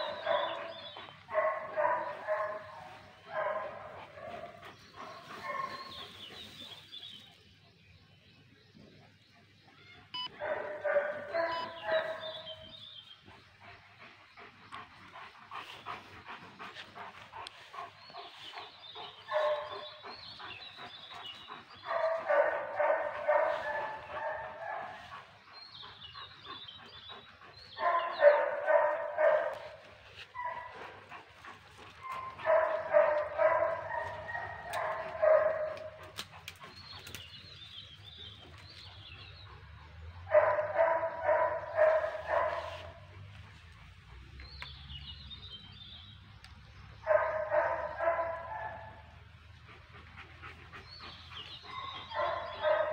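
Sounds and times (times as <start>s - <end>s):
dog barking: 0.0s - 4.5s, 5.4s - 6.0s, 10.2s - 12.6s, 19.2s - 20.0s, 21.8s - 25.1s, 27.8s - 29.8s, 30.4s - 30.8s, 32.0s - 36.1s, 40.2s - 43.1s, 47.0s - 49.1s, 51.7s - 52.9s.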